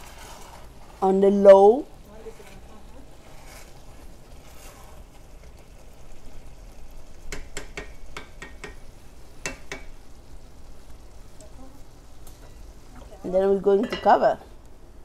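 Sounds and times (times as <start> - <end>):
wooden spoon stirring rice: 0.0 - 14.4
quiet sizzle: 0.0 - 15.0
spoon knocking on pot: 7.3 - 10.0.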